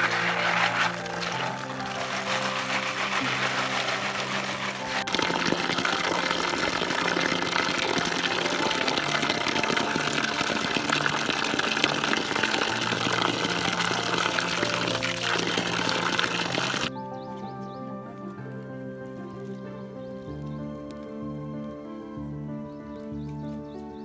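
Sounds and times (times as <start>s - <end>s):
running water rushing: 0.0s - 16.9s
soft background music: 0.0s - 24.0s.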